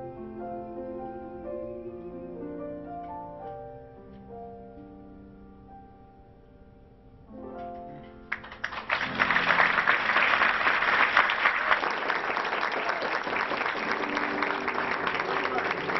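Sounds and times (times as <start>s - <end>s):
soft instrumental music: 0.0s - 8.5s
audience applause: 8.3s - 15.9s.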